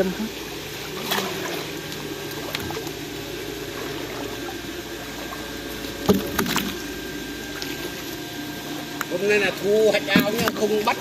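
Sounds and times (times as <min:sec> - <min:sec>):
churning water: 0:00.0 - 0:11.0
pump humming: 0:00.0 - 0:11.0.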